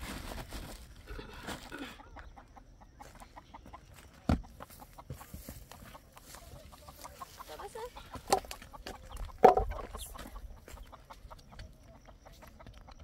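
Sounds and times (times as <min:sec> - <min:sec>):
chickens clucking: 0:01.0 - 0:13.0.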